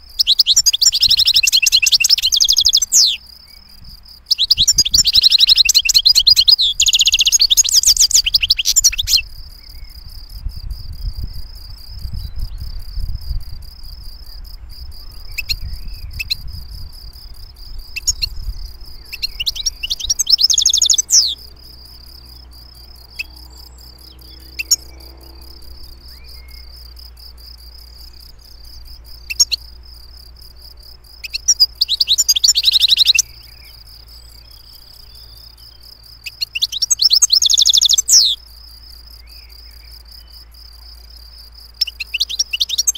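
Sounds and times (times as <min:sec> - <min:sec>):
bird call notes: 0:00.0 - 0:10.0, 0:17.9 - 0:27.1, 0:31.2 - 0:38.4, 0:41.7 - 0:42.9
goldfinch twittering song: 0:00.0 - 0:10.4, 0:14.1 - 0:42.9
low rumble: 0:09.2 - 0:19.9.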